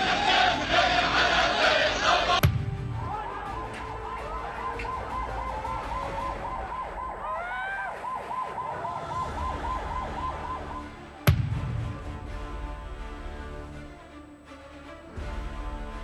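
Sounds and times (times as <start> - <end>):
sharp bang: 2.4 - 3.2, 11.3 - 12.3
siren yelping: 3.3 - 11.2.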